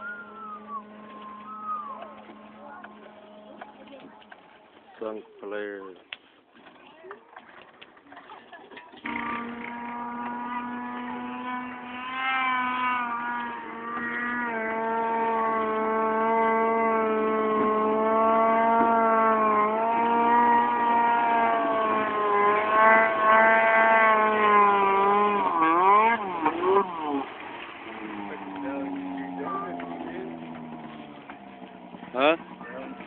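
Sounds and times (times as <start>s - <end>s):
snowmobile engine high whine: 0.0s - 5.0s, 9.0s - 33.0s.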